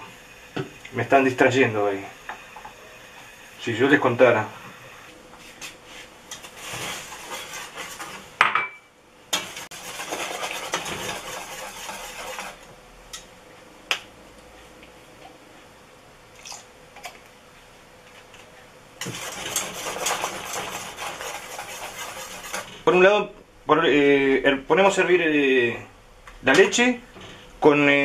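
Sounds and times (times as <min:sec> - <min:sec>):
spoon stirring in pot: 0:06.3 - 0:08.3, 0:09.3 - 0:12.6, 0:19.0 - 0:22.8.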